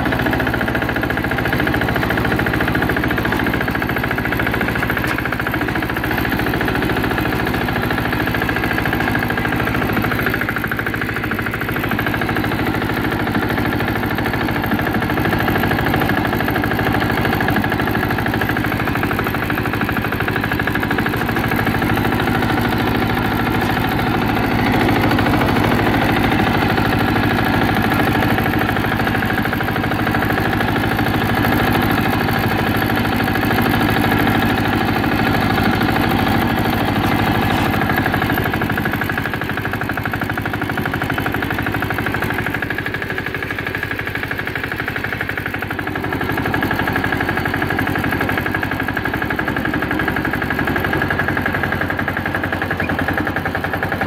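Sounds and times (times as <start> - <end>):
garden tractor engine running: 0.0 - 54.0.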